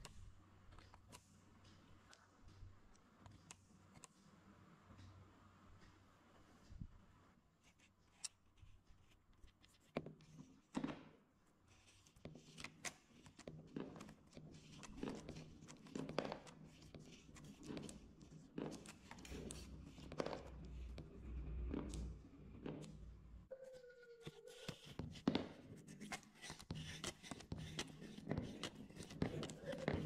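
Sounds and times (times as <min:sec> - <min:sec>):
marbles clicking on cardboard: 0:27.0 - 0:30.0.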